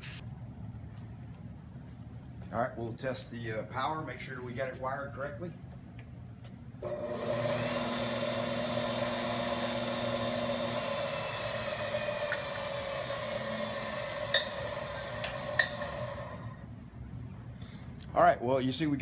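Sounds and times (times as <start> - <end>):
electric motor humming and whining: 6.8 - 16.6.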